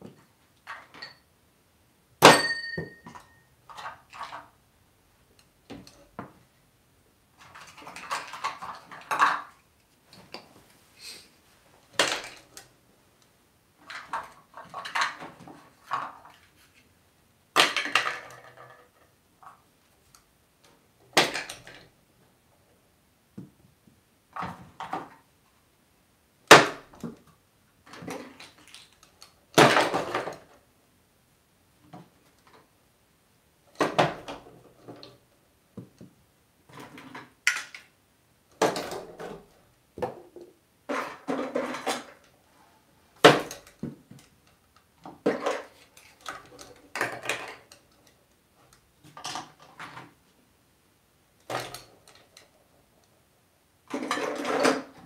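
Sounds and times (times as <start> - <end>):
plastic toys clattering on wood: 3.0 - 4.5, 7.4 - 9.6, 11.9 - 12.7, 13.8 - 16.6, 17.6 - 19.6, 21.2 - 21.9, 27.9 - 30.5, 38.5 - 42.3, 45.1 - 48.2, 49.0 - 50.2, 51.4 - 52.6, 53.9 - 55.0.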